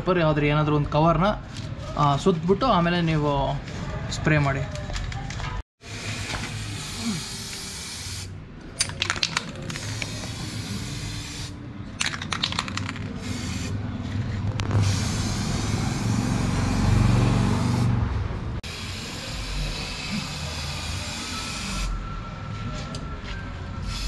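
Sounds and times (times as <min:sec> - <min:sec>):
aerosol can spraying: 0:06.4 - 0:08.3, 0:09.7 - 0:11.6, 0:12.8 - 0:13.8.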